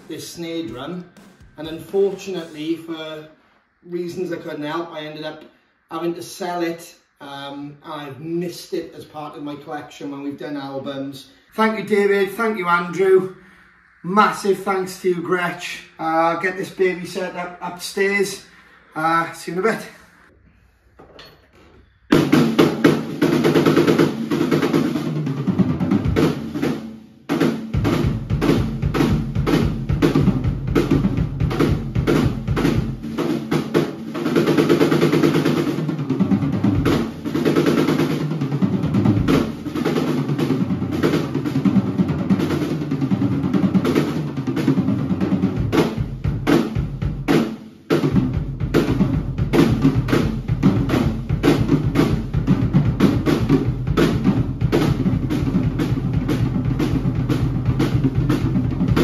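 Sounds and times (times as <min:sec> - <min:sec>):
drum kit played hard: 0:00.0 - 0:03.4, 0:22.1 - 0:59.0.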